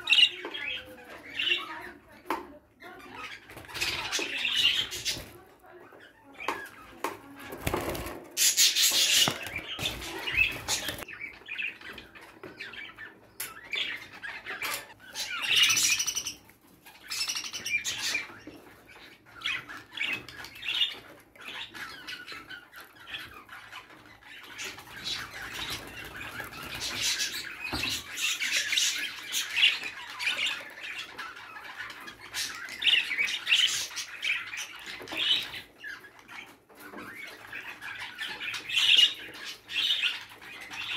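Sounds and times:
budgerigars chirping: 0:08.4 - 0:40.9.

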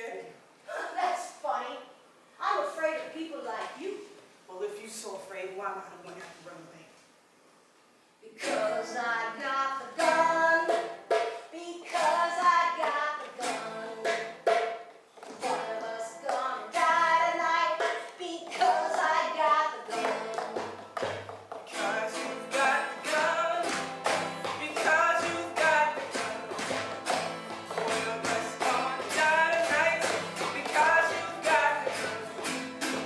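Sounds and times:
person singing: 0:08.4 - 0:14.4, 0:15.4 - 0:20.8, 0:21.7 - 0:26.9, 0:27.6 - 0:33.0
strummed baritone ukulele: 0:18.5 - 0:33.0.

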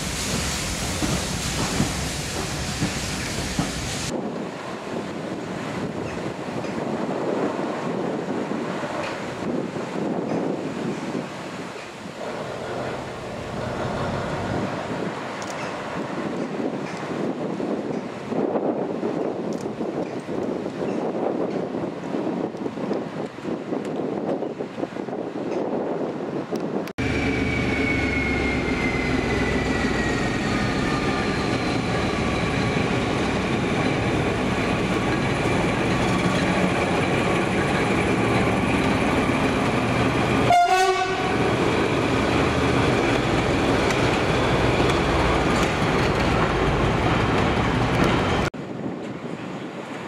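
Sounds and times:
locomotive rumbling past: 0:00.0 - 0:18.4, 0:27.0 - 0:50.0
wind on microphone: 0:00.0 - 0:27.0
falling engine whine: 0:27.0 - 0:34.3.

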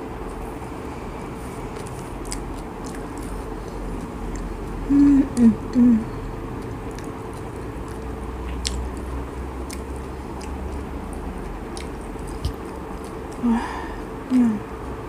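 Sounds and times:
closed-mouth chewing: 0:00.0 - 0:14.8
faint steady hum: 0:00.0 - 0:15.0
wet mouth clicks: 0:01.7 - 0:05.8, 0:06.6 - 0:13.4.

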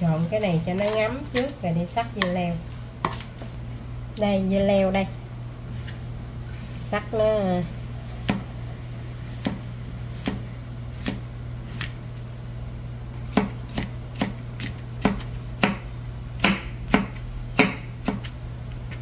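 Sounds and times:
knife chopping on cutting board: 0:08.2 - 0:08.5, 0:09.4 - 0:09.6, 0:13.3 - 0:15.8, 0:16.4 - 0:18.3.

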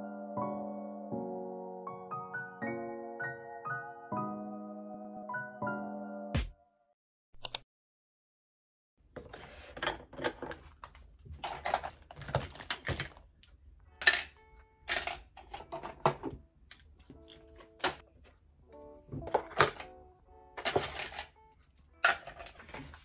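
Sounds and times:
piano tune: 0:00.0 - 0:06.7, 0:15.6 - 0:22.1
cosmetic bottles clicking and clattering: 0:09.2 - 0:13.3, 0:14.0 - 0:18.0, 0:19.1 - 0:19.9, 0:20.6 - 0:23.0.

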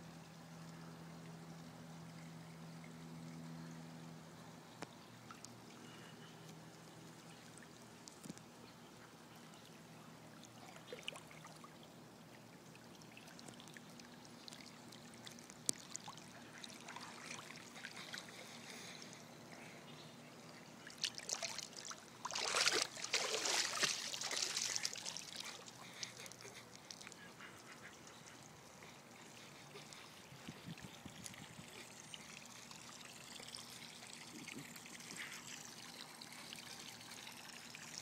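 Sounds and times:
water sloshing underwater: 0:20.4 - 0:35.5.

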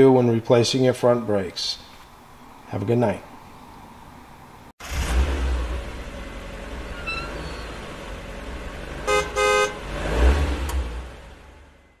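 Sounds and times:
car engine rumbling: 0:04.8 - 0:12.0
car horn honking: 0:09.0 - 0:10.0.

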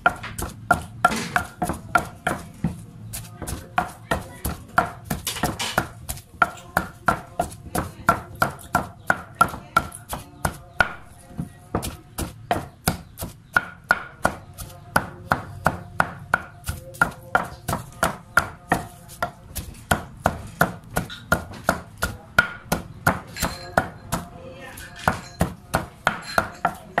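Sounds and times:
pestle pounding in stone mortar: 0:00.0 - 0:27.0.

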